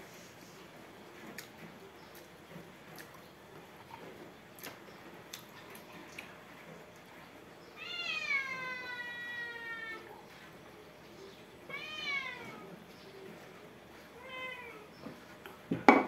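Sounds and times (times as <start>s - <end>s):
cat meowing: 7.8s - 10.2s, 11.7s - 12.7s, 14.2s - 14.9s.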